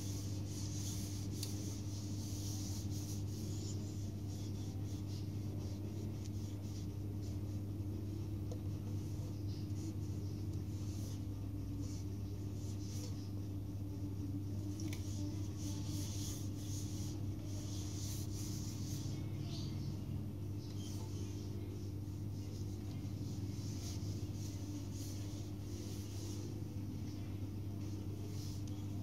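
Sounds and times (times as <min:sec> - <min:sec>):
cloth rubbing on wood: 0:00.0 - 0:07.6, 0:15.0 - 0:19.2, 0:21.9 - 0:26.6
ceiling fan hum: 0:00.0 - 0:29.0.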